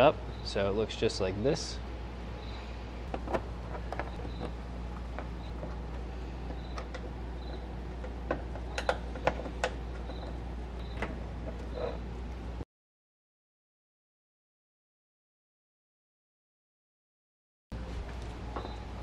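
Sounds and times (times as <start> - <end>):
steady low hum: 0.0 - 12.6.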